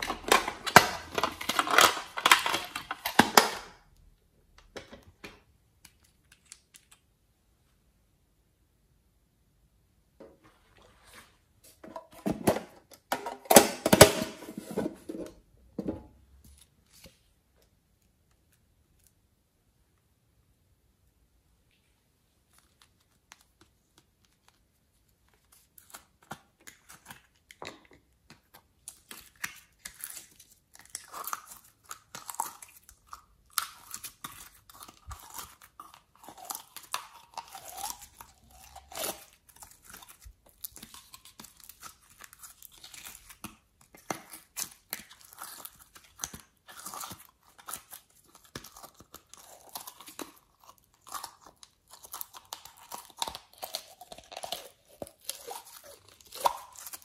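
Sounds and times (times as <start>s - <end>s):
plastic bottles crackling: 0.0s - 3.7s
clay tearing and squishing: 0.0s - 4.2s, 16.4s - 20.0s, 21.7s - 57.0s.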